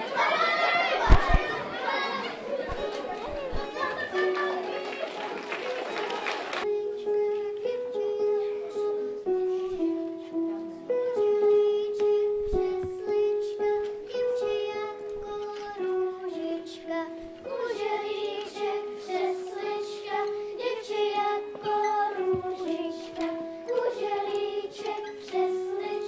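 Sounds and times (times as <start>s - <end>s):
children singing in unison: 0.0s - 26.0s
light instrumental accompaniment: 2.7s - 26.0s.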